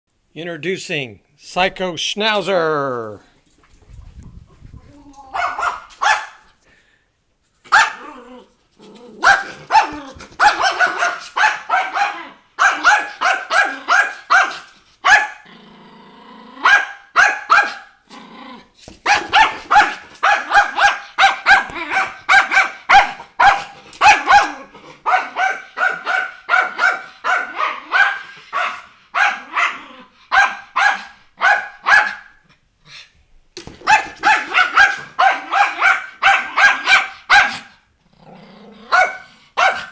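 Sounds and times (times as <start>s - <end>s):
dog barking: 5.3s - 6.5s, 7.7s - 8.1s, 9.2s - 15.4s, 16.6s - 18.0s, 19.0s - 32.4s, 33.8s - 37.9s, 38.9s - 39.9s
dog growling: 8.0s - 10.4s, 15.4s - 16.7s, 18.0s - 18.8s, 21.6s - 22.2s, 23.2s - 25.1s, 29.4s - 30.2s, 38.0s - 39.6s.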